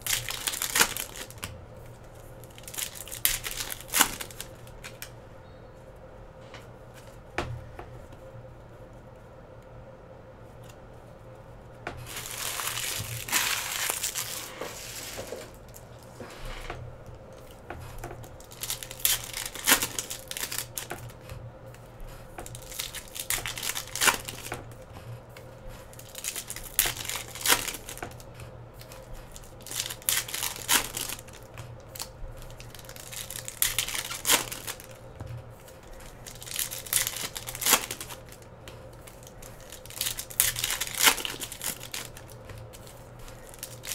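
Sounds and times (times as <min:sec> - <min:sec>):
packaging tearing and crinkling: 0:00.0 - 0:01.5, 0:02.4 - 0:05.1, 0:12.0 - 0:16.1, 0:18.2 - 0:21.2, 0:22.4 - 0:24.7, 0:25.9 - 0:28.2, 0:28.8 - 0:35.0, 0:35.6 - 0:38.4, 0:39.0 - 0:43.9.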